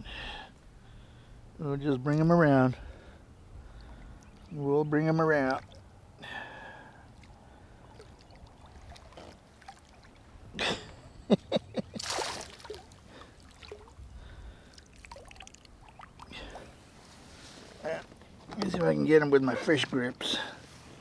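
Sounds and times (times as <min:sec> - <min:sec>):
fish splashing in water: 0:12.0 - 0:14.0, 0:14.6 - 0:16.6.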